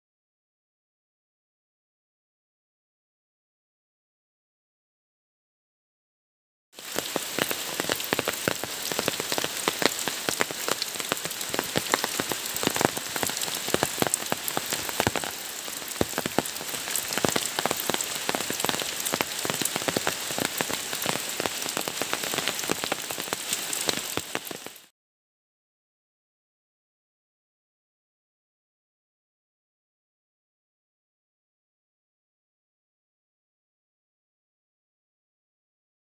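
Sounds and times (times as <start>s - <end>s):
rain on foliage: 6.8s - 24.9s.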